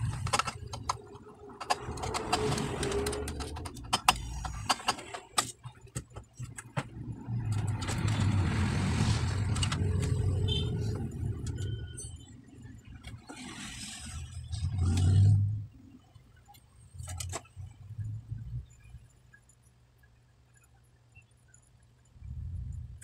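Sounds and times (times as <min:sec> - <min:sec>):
clicks and knocks of circuit boards: 0:00.0 - 0:08.4.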